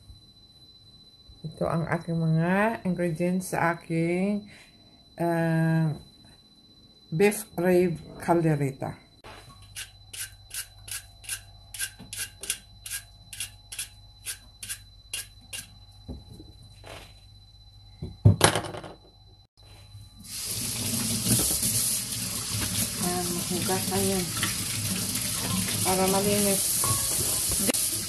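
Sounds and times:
peeler scraping carrot: 9.8 - 15.7.

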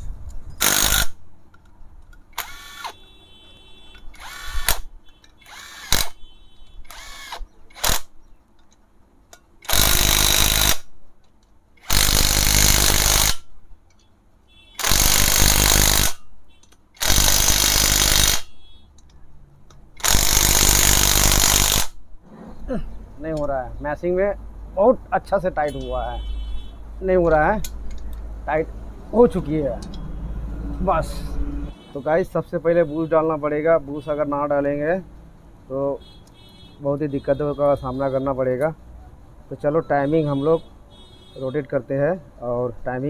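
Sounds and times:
impact wrench spinning: 0.6 - 1.2, 2.4 - 3.0, 4.0 - 6.2, 6.9 - 8.1, 9.6 - 10.9, 11.8 - 13.5, 14.8 - 16.2, 17.0 - 18.6, 20.0 - 22.0.

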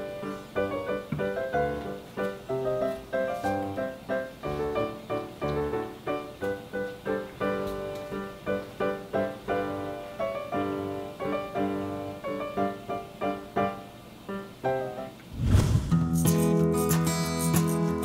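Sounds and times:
cheerful piano music: 0.0 - 15.2, 16.0 - 18.0.

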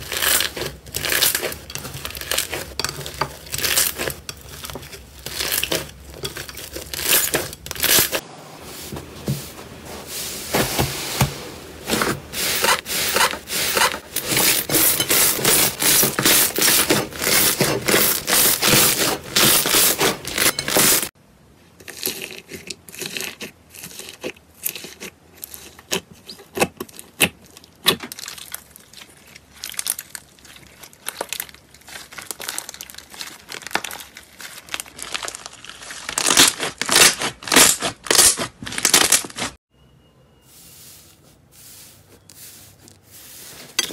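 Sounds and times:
slime crackling and popping: 27.2 - 39.6.

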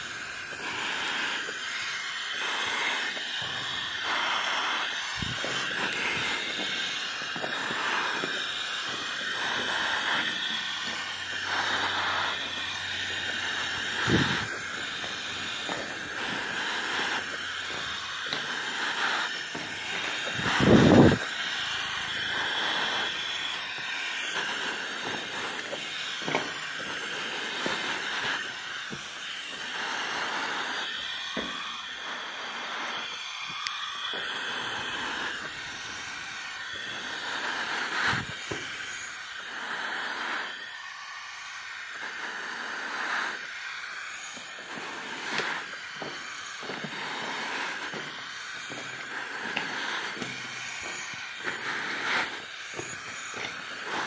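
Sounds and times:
steady hiss: 0.0 - 54.0
footsteps crunching on gravel: 5.1 - 29.0, 44.4 - 54.0.

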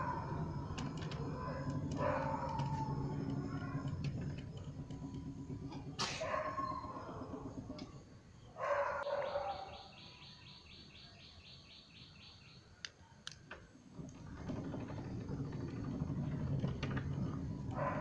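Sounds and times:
gate motor humming: 0.0 - 9.1, 13.4 - 18.0
dog barking: 2.0 - 2.6, 6.1 - 6.9, 8.6 - 9.8.

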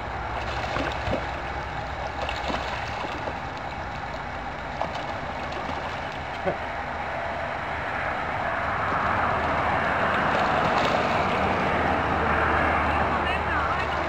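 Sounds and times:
steady rushing noise: 0.0 - 14.0
ducks calling: 5.8 - 6.8.

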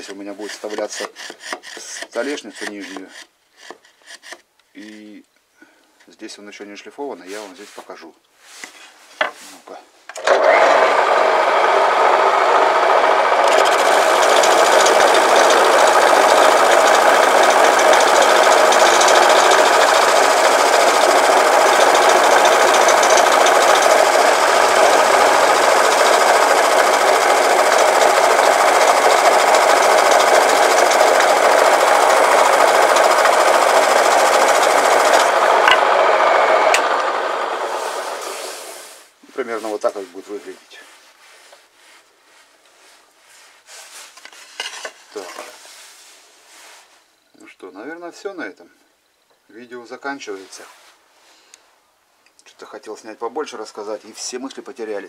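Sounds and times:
stick rubbing on spinning wood: 0.0 - 4.4, 13.4 - 40.6.

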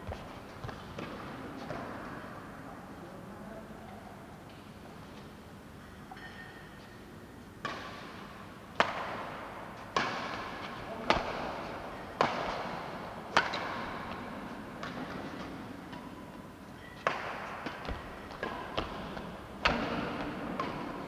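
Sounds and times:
racket hitting shuttlecock: 7.6 - 21.0.

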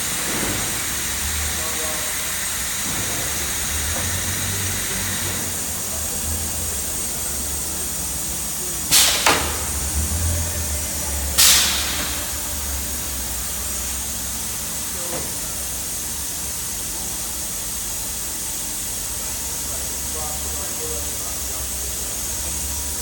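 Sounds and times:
factory machinery hum: 0.0 - 23.0
large fan: 0.0 - 23.0
compressed air hissing: 8.6 - 9.9, 10.8 - 14.0.

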